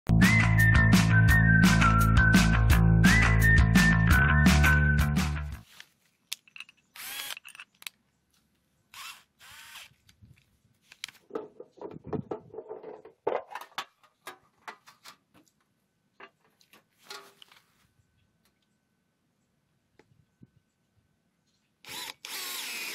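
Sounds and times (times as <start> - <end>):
cordless drill with hole saw: 7.0 - 7.6, 8.9 - 10.0, 21.8 - 22.9.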